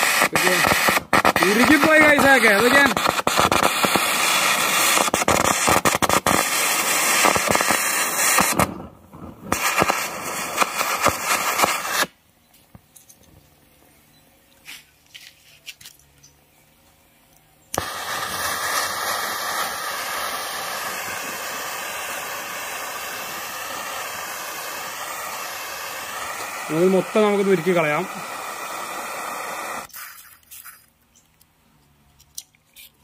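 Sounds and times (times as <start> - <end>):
gas torch hissing and crackling: 0.0 - 12.2, 17.7 - 30.9.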